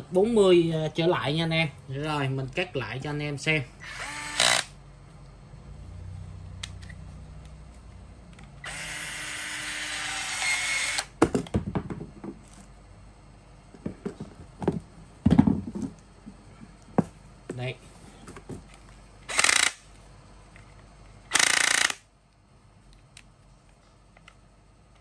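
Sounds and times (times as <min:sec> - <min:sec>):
cordless shear motor cutting tube: 0:03.8 - 0:04.7, 0:08.6 - 0:11.1.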